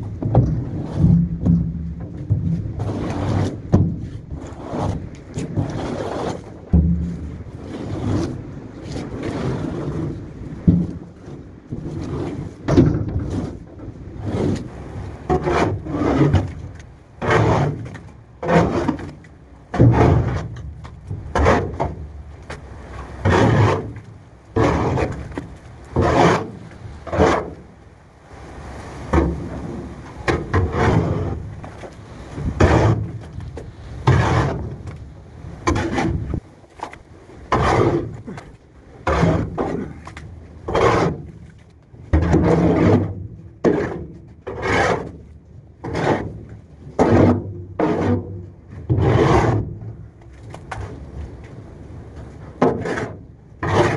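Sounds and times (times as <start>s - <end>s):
shovel scraping wet manure: 2.8s - 6.6s, 14.2s - 20.6s, 21.3s - 27.7s, 29.1s - 35.0s, 35.6s - 41.3s, 42.1s - 45.1s, 45.8s - 46.3s, 47.0s - 48.2s, 48.9s - 49.7s, 52.6s - 53.9s.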